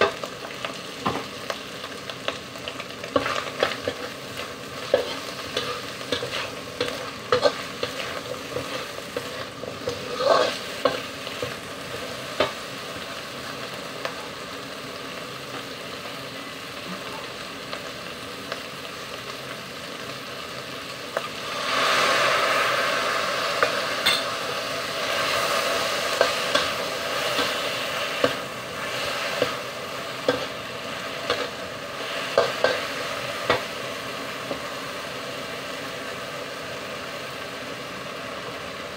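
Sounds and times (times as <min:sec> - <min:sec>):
vegetables sizzling in a wok: 0:00.0 - 0:38.9
metal spatula scraping a pan: 0:03.2 - 0:11.6.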